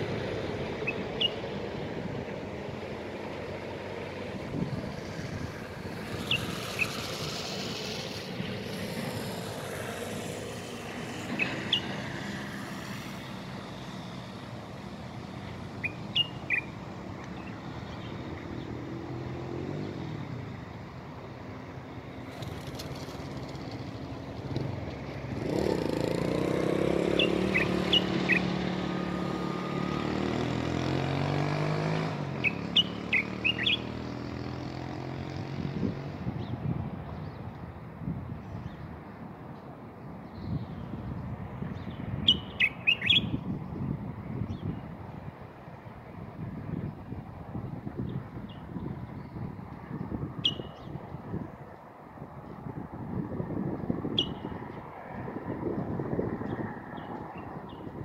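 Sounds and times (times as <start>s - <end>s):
motor vehicle passing: 0.0s - 58.0s
road traffic hum: 0.0s - 58.0s
small bird chirping: 0.8s - 1.4s, 11.3s - 12.4s, 15.4s - 18.7s, 27.0s - 28.6s, 32.4s - 33.9s, 42.2s - 43.4s, 50.4s - 51.0s, 54.1s - 54.5s.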